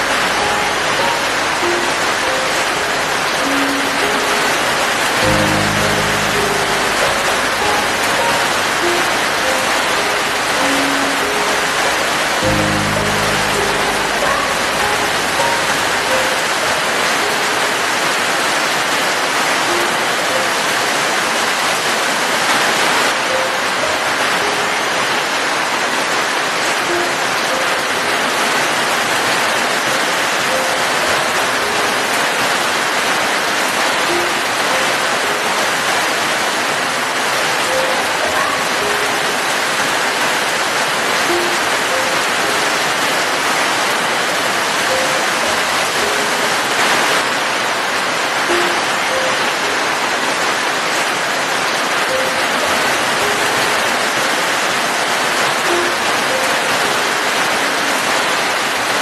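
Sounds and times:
steady rain falling: 0:00.0 - 0:59.0
faint short pitched notes: 0:00.1 - 0:16.9.

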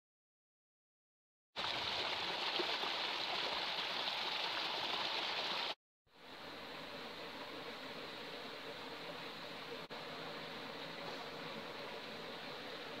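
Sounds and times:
stream rushing over stones: 0:01.6 - 0:05.8
quiet water flow in pool: 0:01.6 - 0:13.0.

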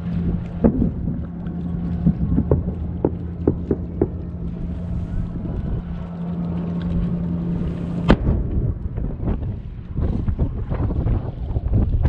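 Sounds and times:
low rumble: 0:00.0 - 0:12.0
steady low hum: 0:00.0 - 0:12.0
firework bang with echo: 0:08.1 - 0:08.6.

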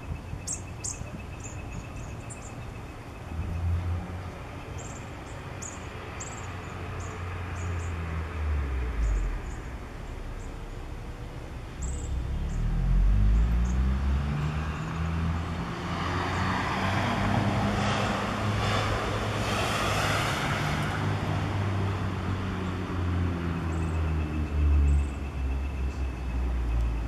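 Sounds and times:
road noise of passing traffic: 0:00.0 - 0:27.0
low engine rumble: 0:07.3 - 0:15.6.

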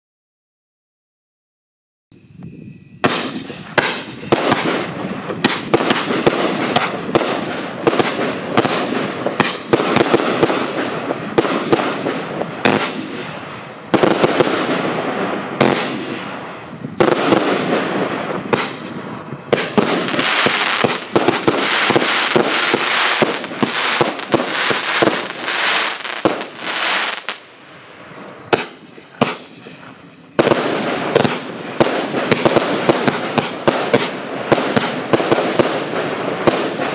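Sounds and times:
firework barrage: 0:03.0 - 0:36.9.

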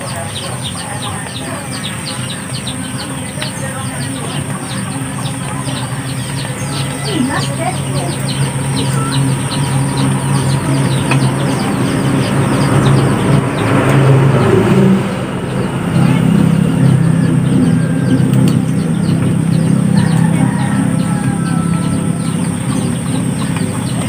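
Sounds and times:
birds chirping: 0:00.0 - 0:24.0
engine humming: 0:00.0 - 0:24.0.

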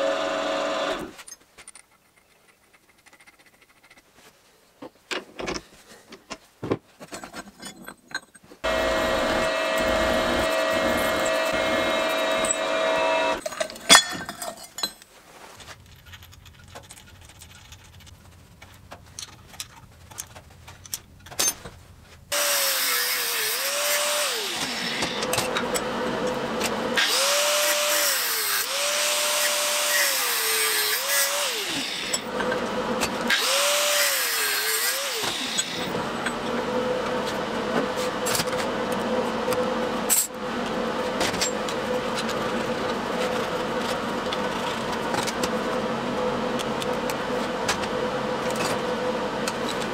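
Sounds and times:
angle grinder cutting steel: 0:00.0 - 0:01.2, 0:08.6 - 0:13.5, 0:22.3 - 0:36.6.

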